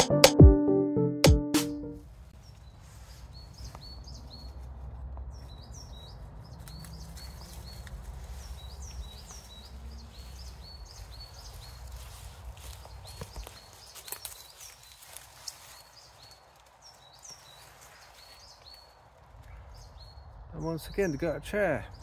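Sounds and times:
small birds chirping: 0:02.3 - 0:22.0.

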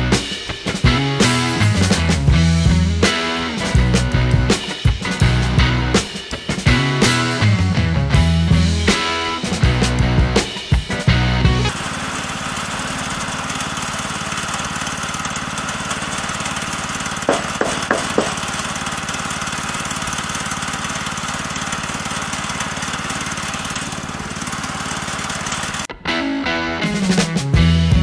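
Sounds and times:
small gasoline engine running: 0:11.6 - 0:25.9
sharp knocks: 0:17.3 - 0:18.5.

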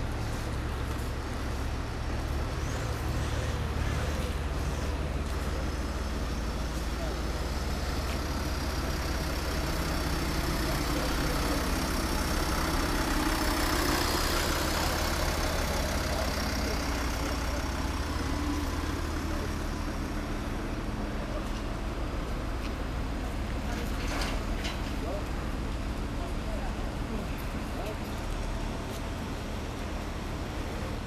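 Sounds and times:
vehicle engines idling: 0:00.0 - 0:31.0.

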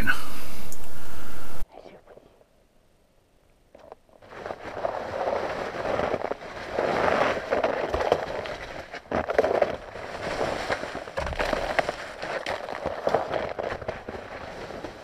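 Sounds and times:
crackling and rustling: 0:03.7 - 0:15.0
snowshoes crunching on crusty snow: 0:04.2 - 0:15.0.

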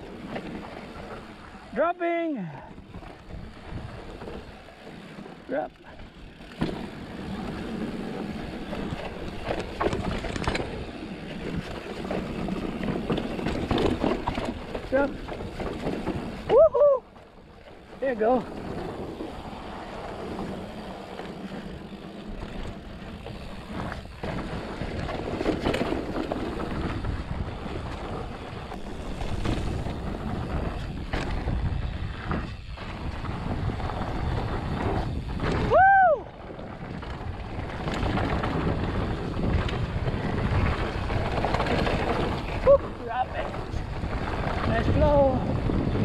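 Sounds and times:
bike tyres rolling on dirt: 0:00.0 - 0:46.0
wind buffeting microphone: 0:02.7 - 0:04.8, 0:06.0 - 0:46.0
bike knocking over bumps: 0:06.4 - 0:07.8, 0:08.5 - 0:16.7.

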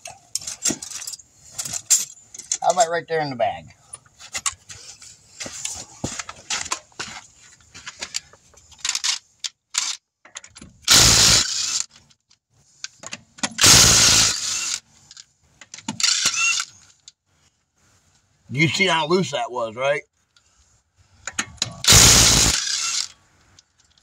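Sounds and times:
impact wrench hammering: 0:21.9 - 0:22.9.

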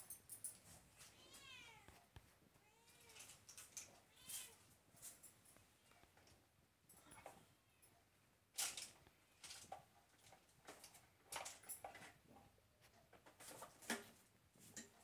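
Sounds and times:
soft clicks and rustles: 0:00.0 - 0:15.0.

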